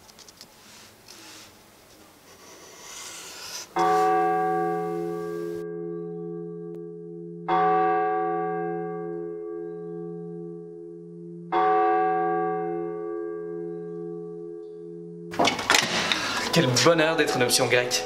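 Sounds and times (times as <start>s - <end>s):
marker scratching across paper: 0.6s - 5.6s.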